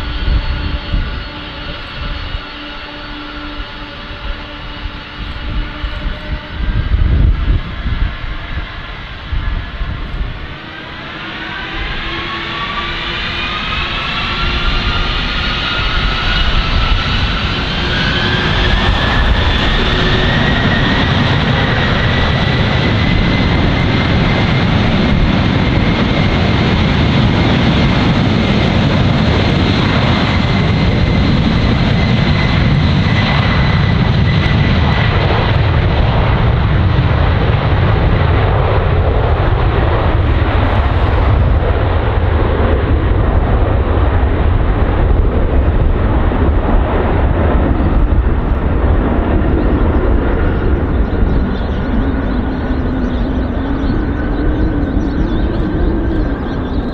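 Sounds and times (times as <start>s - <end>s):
jet engine roar with high whine: 0.0s - 56.9s
jet engines spooling up: 0.0s - 56.9s.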